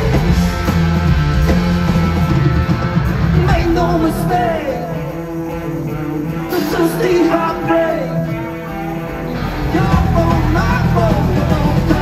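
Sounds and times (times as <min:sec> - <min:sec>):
electric guitar: 0:00.0 - 0:12.0
live rock band playing: 0:00.0 - 0:12.0
person singing: 0:03.3 - 0:05.3, 0:06.2 - 0:12.0.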